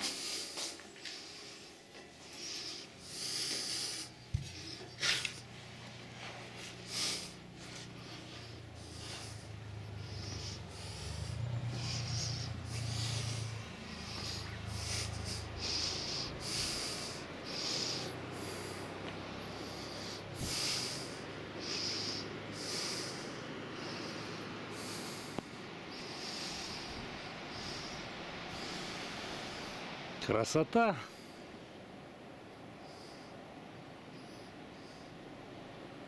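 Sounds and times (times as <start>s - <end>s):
person breathing hard: 0.0s - 5.5s, 6.2s - 30.2s
low steady hum: 0.0s - 36.0s.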